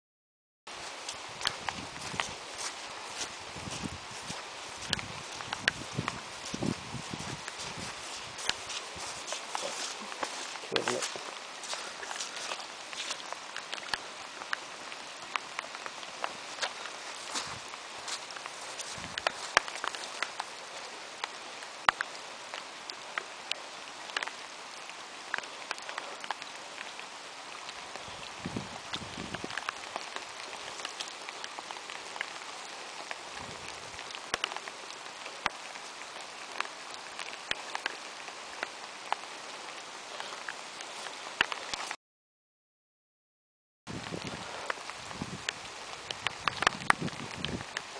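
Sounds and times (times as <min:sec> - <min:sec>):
sneakers stepping through puddles: 0:00.7 - 0:22.6, 0:27.5 - 0:38.0
light rain pattering: 0:00.7 - 0:42.0, 0:43.9 - 0:47.9.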